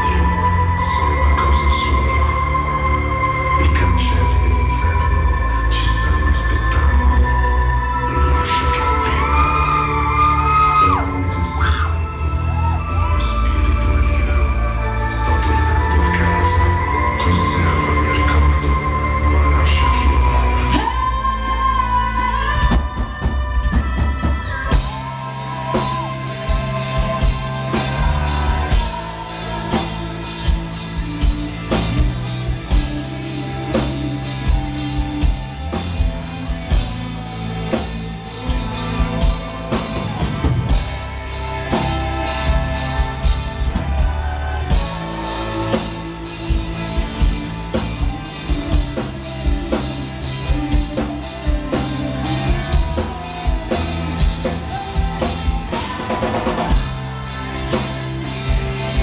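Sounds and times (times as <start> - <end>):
metal band playing live: 0.0 - 59.0
drum kit beat: 22.9 - 59.0.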